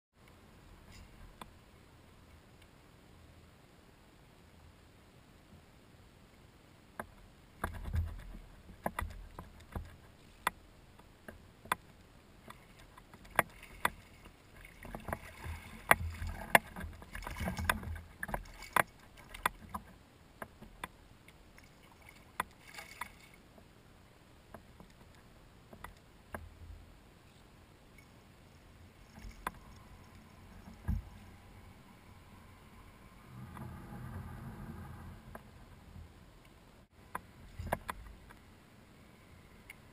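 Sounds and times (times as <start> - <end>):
water wash and handling noise: 12.4 - 20.0, 21.6 - 23.4, 29.0 - 31.2.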